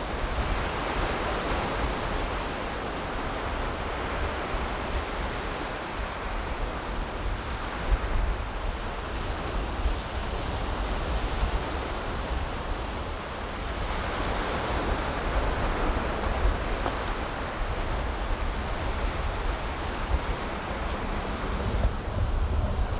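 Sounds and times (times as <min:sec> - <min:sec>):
ocean surf: 0:00.0 - 0:22.9
wind buffeting microphone: 0:00.0 - 0:22.9.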